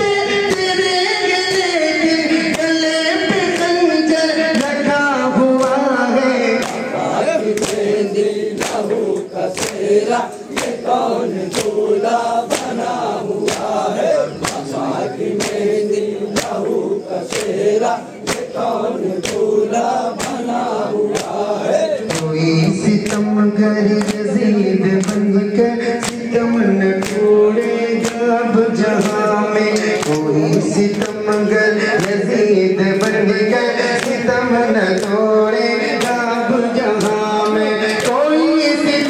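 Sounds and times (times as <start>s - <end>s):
men chanting in chorus: 0.0s - 39.0s
hand slaps on chest: 7.6s - 7.9s, 8.6s - 9.0s, 9.6s - 9.8s, 12.5s - 12.8s, 14.4s - 14.7s, 15.4s - 15.6s, 16.4s - 17.6s, 18.3s - 18.5s, 26.0s - 26.2s.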